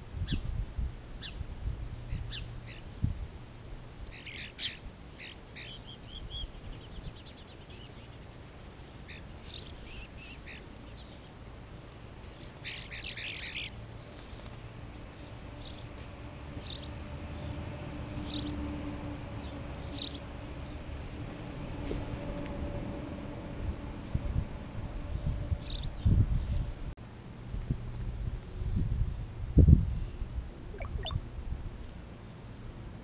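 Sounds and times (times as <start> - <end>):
songbirds chirping: 30.1 - 32.2.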